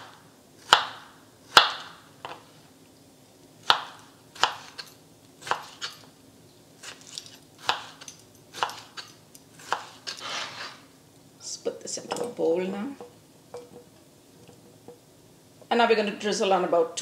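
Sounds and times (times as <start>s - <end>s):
knife chopping on cutting board: 0.0s - 2.4s, 3.6s - 5.9s, 7.6s - 10.2s.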